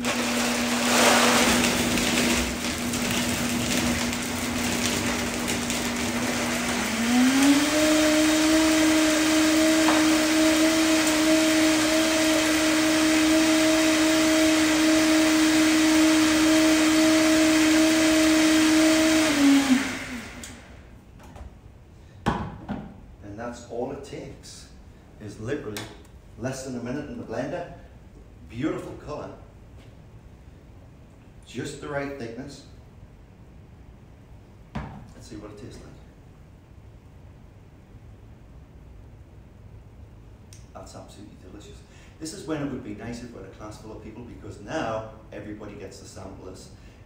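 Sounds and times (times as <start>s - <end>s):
blender motor running: 0.0s - 20.8s.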